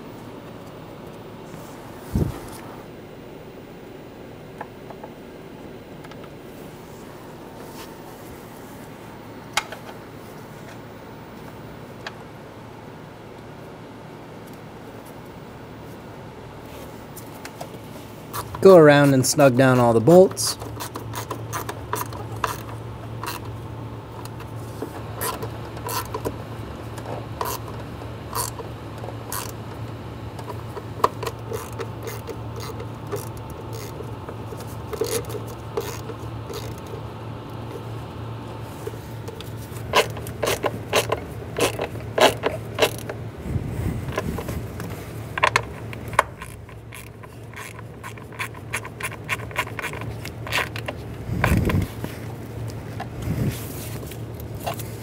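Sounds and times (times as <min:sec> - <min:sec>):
low hum: 0:00.0 - 0:55.0
ratchet wrench clicking: 0:20.4 - 0:23.5, 0:28.3 - 0:28.6, 0:29.3 - 0:29.6, 0:30.4 - 0:34.0, 0:34.9 - 0:36.9, 0:39.9 - 0:43.1, 0:45.4 - 0:51.8.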